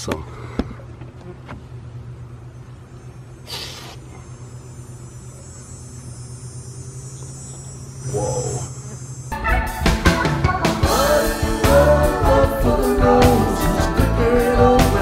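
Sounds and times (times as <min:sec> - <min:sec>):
steady low hum: 0:00.0 - 0:15.0
aerosol spray hiss: 0:03.4 - 0:04.1.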